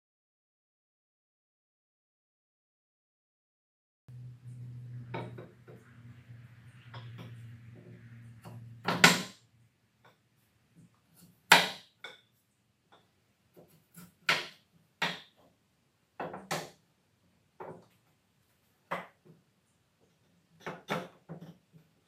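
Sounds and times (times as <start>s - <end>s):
low steady hum: 4.1s - 11.0s
wooden parts knocking: 8.4s - 9.4s.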